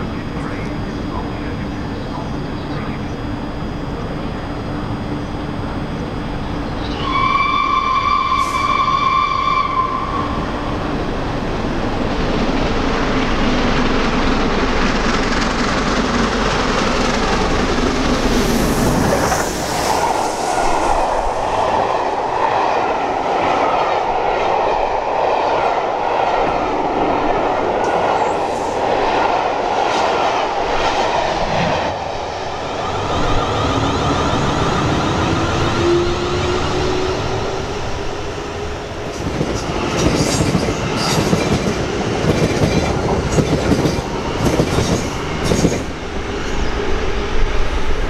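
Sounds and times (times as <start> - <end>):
steam locomotive passing: 0.0 - 48.0
steam locomotive whistle: 6.9 - 10.4
rail-joint clicks: 39.1 - 46.0.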